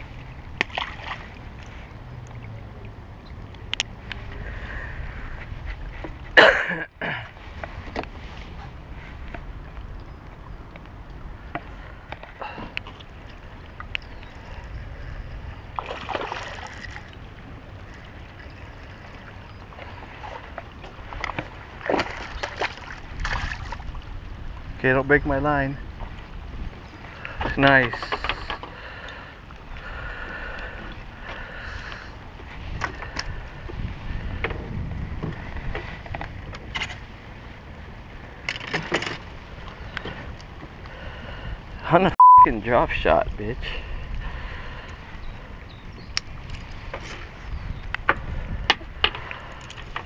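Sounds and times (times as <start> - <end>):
water splashing surges: 0.0 - 5.4, 11.6 - 24.8
wind rumbling on microphone: 0.0 - 6.4, 7.3 - 41.9, 42.6 - 50.0
water lapping against dock: 0.0 - 42.0, 43.0 - 50.0.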